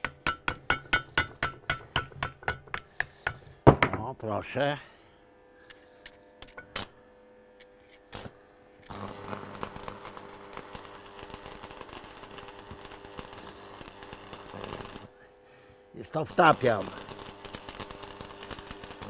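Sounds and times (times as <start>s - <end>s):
welder electrical hum: 0.0s - 19.0s
arc welding crackle: 8.1s - 15.3s, 16.0s - 19.0s.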